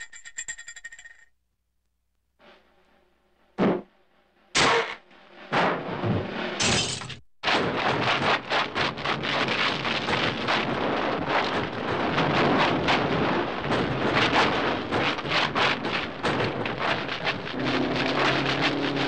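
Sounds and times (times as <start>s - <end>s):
cartoon crashes: 4.6s - 6.0s, 6.6s - 10.6s
cartoon thud: 4.6s - 6.0s.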